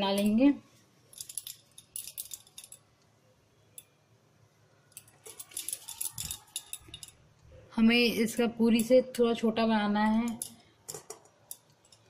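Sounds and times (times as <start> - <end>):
light clicks and metallic jingling: 4.9 - 7.2.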